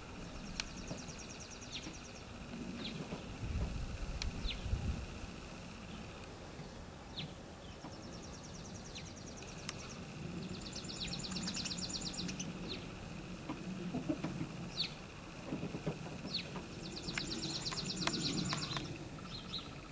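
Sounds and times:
small birds chirping and trilling: 0.0s - 19.9s
hens murmuring: 8.9s - 19.9s.

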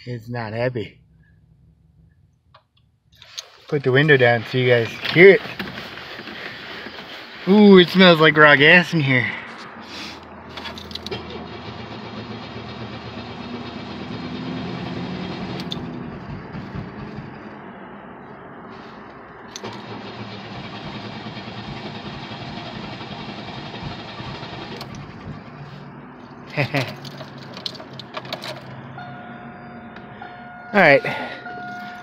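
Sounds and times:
car engine cranking: 1.1s - 8.8s, 9.5s - 28.9s.

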